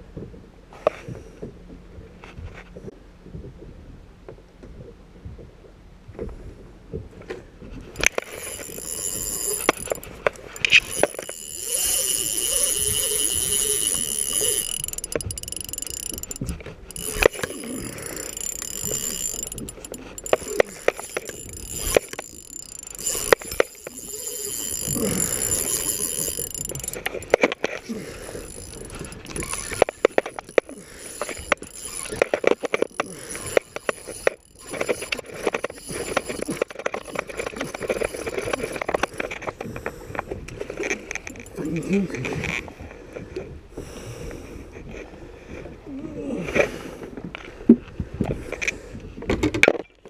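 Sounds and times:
fishing reel clicking: 8.0 - 41.8.

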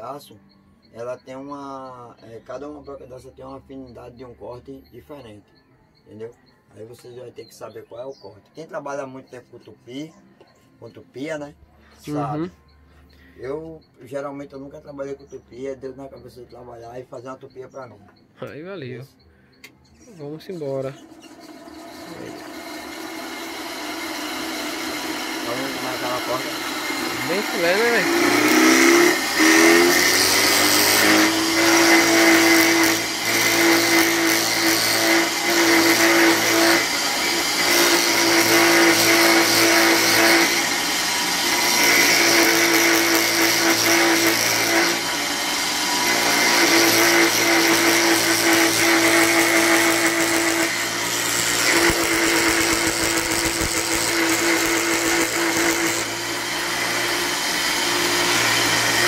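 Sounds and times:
electric router cutting wood: 20.6 - 59.0.

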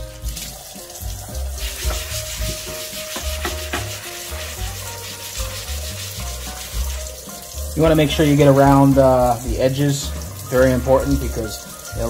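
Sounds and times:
sponge scrubbing steel sheet: 1.2 - 9.7.

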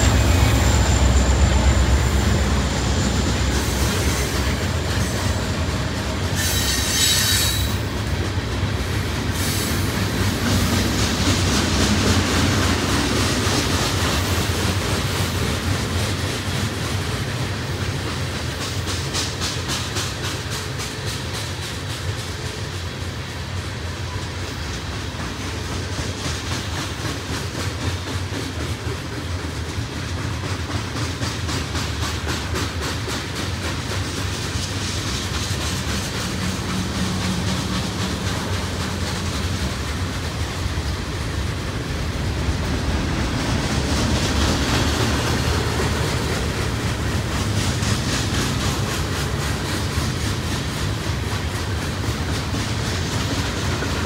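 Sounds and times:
freight train wheels rumbling: 0.0 - 54.0
wheels clicking over rail joints: 24.1 - 54.0.

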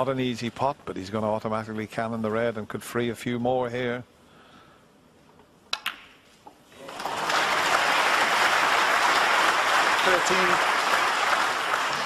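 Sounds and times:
snooker balls clicking: 5.4 - 6.2
audience applause: 6.8 - 12.0.

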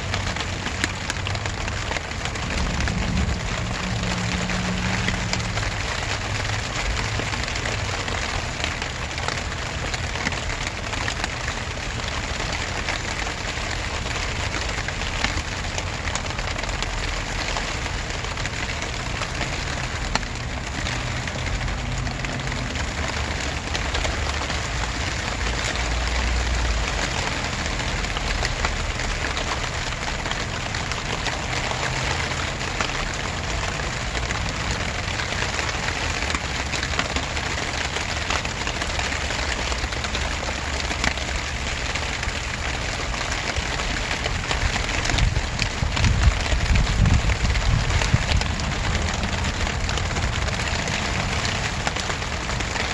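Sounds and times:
steady rain falling: 0.0 - 52.9
low rumble: 1.2 - 6.9.

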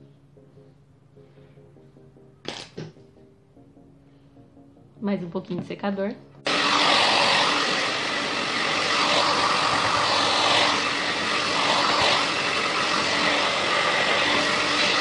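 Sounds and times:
hair dryer blowing: 6.4 - 15.0.

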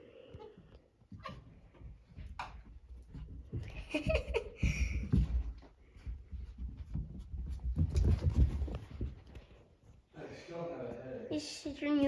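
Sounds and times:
dogs scuffling: 1.1 - 10.0.

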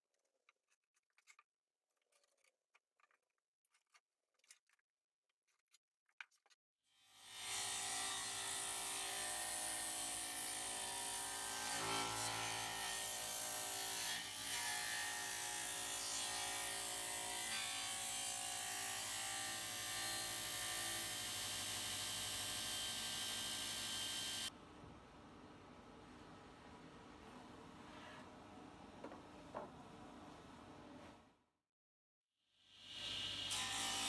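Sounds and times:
table saw running: 16.6 - 24.5.

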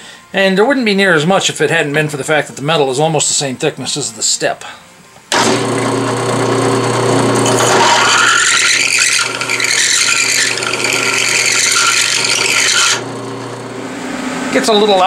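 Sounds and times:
drill press motor hum: 5.3 - 14.6
drill bit rasping on steel: 7.5 - 13.1.

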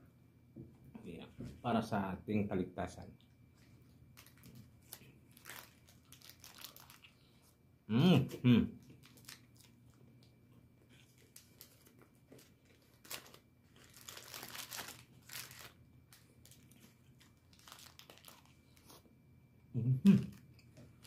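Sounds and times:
plastic packaging crinkling: 4.0 - 7.3, 8.8 - 19.0.

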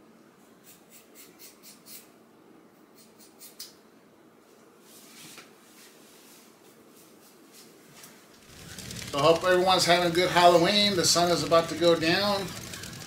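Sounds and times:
scissors snipping hair: 3.0 - 3.8
soft rustle: 4.4 - 10.5.

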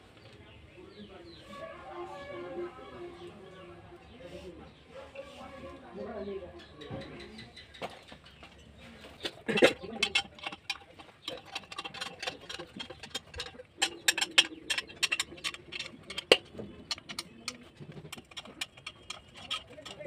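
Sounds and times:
metal parts clicking and tapping: 9.5 - 20.0.

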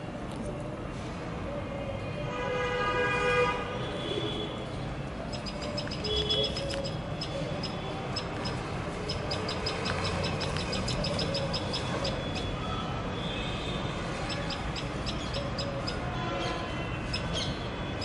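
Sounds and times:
traffic noise: 0.0 - 18.0
vehicle horn: 2.3 - 4.6.

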